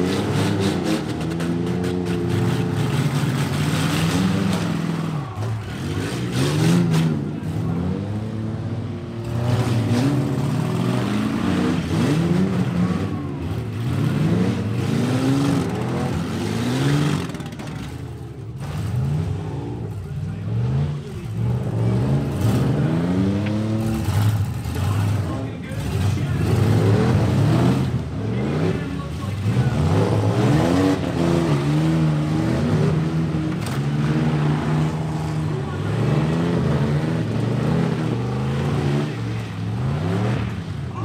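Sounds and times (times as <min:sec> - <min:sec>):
truck engines revving: 0:00.0 - 0:41.0.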